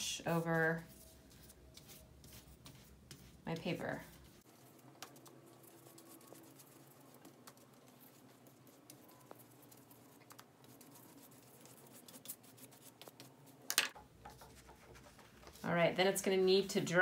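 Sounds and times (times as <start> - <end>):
paintbrush tapping and brushing paper: 0.3 - 15.8.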